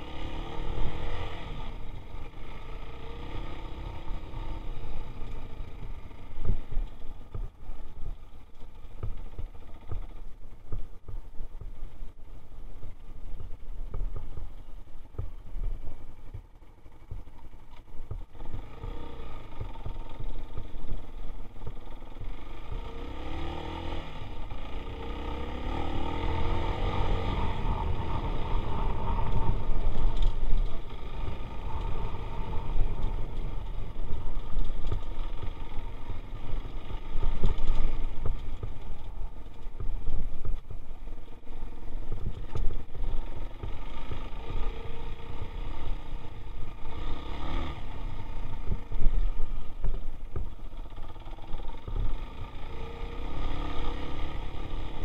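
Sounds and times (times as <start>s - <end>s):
dirt bike engine revving: 22.2s - 34.0s.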